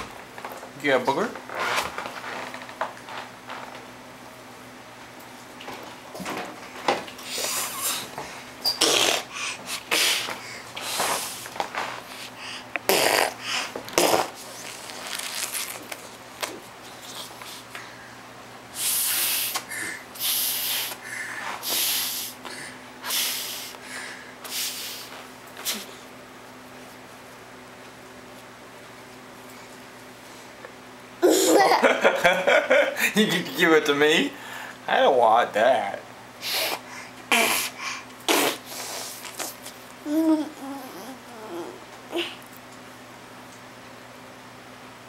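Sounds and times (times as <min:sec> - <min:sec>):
toddler blowing nose into tissue: 0:08.8 - 0:11.4, 0:12.1 - 0:15.8, 0:18.8 - 0:19.6, 0:20.2 - 0:21.0, 0:21.6 - 0:22.4, 0:23.0 - 0:23.7, 0:24.5 - 0:25.9, 0:36.4 - 0:39.6.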